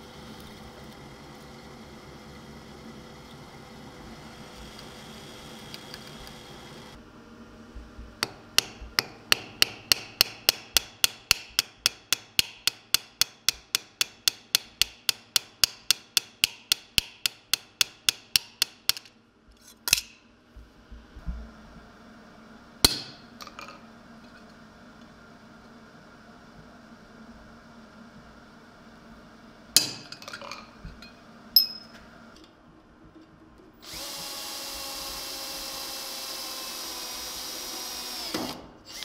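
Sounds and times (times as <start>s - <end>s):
hammer tapping steel sheet: 8.2s - 19.1s.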